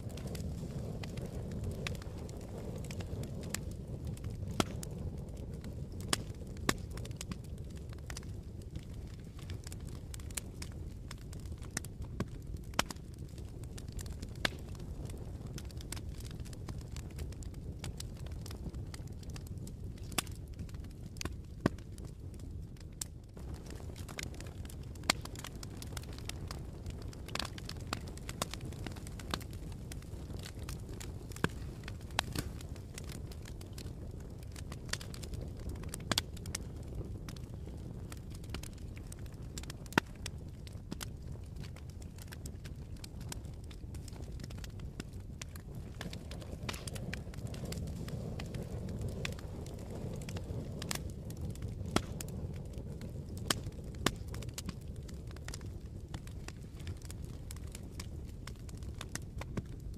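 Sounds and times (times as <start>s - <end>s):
sharp pops of fire: 0.0s - 59.9s
wood fire crackling: 0.0s - 59.9s.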